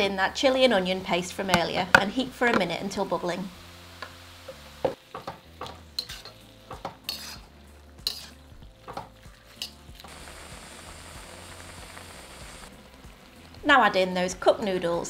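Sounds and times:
food sizzling: 0:00.0 - 0:15.0
metal turner scraping a wok: 0:06.0 - 0:08.6, 0:09.4 - 0:10.0.

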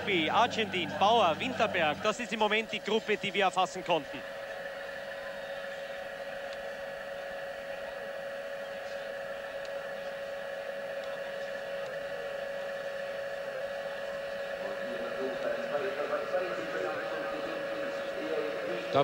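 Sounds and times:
steady mechanical hum: 0:00.0 - 0:19.0.

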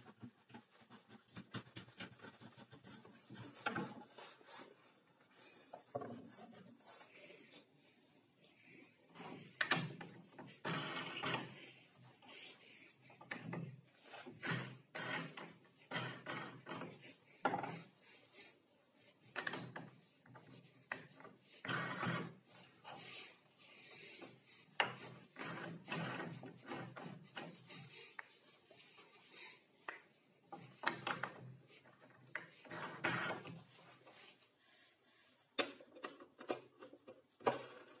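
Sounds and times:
wood rubbing and scraping: 0:00.0 - 0:07.5, 0:20.0 - 0:38.0.

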